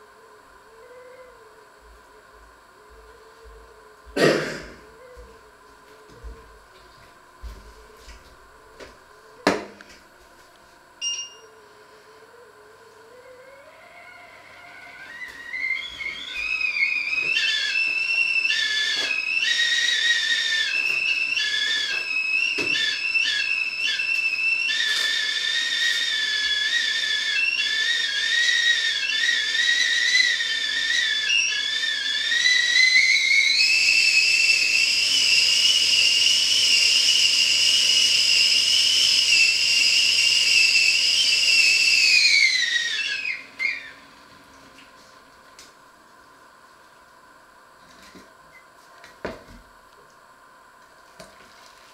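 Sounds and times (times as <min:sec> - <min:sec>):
kettle whistling: 0:01.6 - 0:10.2, 0:13.2 - 0:45.8.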